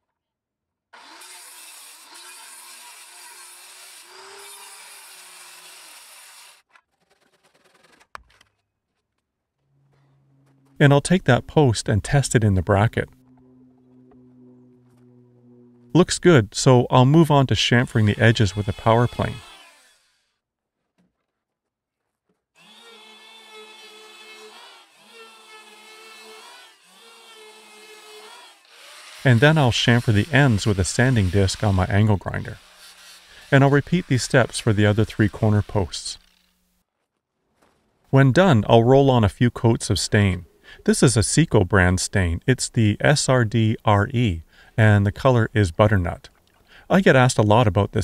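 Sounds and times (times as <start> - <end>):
circular saw cutting timber: 1.0 - 8.1, 10.4 - 20.4, 22.6 - 36.6
handsaw strokes: 1.0 - 8.1, 17.4 - 20.4, 22.6 - 36.6
electric power plane whining: 13.1 - 16.0, 22.6 - 29.4.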